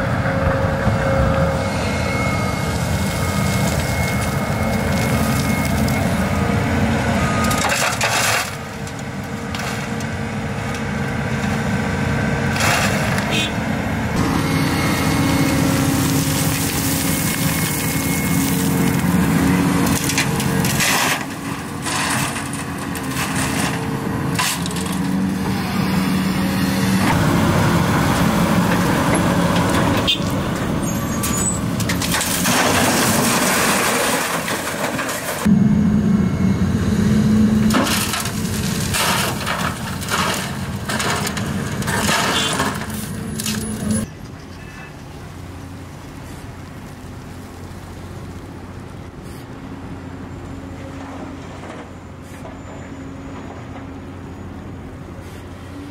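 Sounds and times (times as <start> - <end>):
excavator diesel engine and hydraulics: 0.0 - 55.9
dirt and stones clattering: 7.4 - 10.1, 15.4 - 25.2, 28.7 - 35.5, 37.7 - 44.1.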